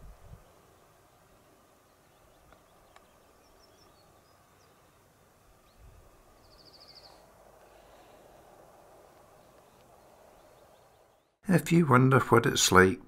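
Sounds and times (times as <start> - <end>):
faint bird chirps: 0.3 - 8.5.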